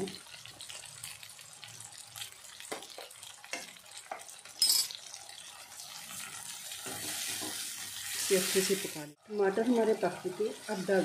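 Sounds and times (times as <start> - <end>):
frying sizzle: 0.0 - 11.0
spatula stirring in a pan: 0.4 - 8.8
spatula scraping a pan: 6.8 - 8.3.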